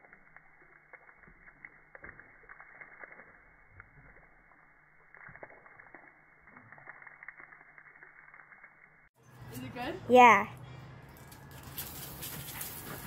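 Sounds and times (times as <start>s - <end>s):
water stream splashing into puddle: 0.0s - 8.9s.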